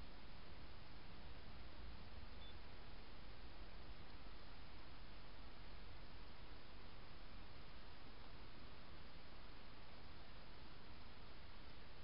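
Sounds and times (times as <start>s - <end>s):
faint microphone hiss: 0.0s - 12.0s.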